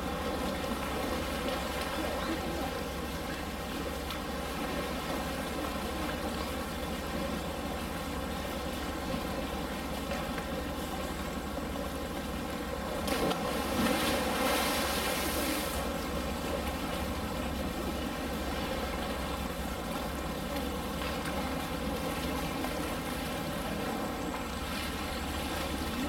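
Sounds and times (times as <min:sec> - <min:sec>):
water lapping: 0:00.0 - 0:26.0.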